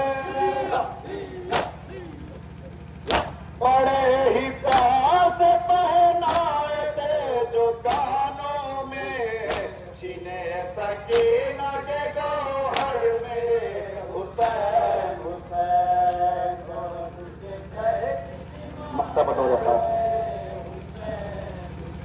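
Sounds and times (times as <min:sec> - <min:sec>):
men chanting a lament: 0:00.0 - 0:22.0
rhythmic chest slaps: 0:01.1 - 0:03.6, 0:04.5 - 0:10.0, 0:10.9 - 0:15.1, 0:15.9 - 0:16.7.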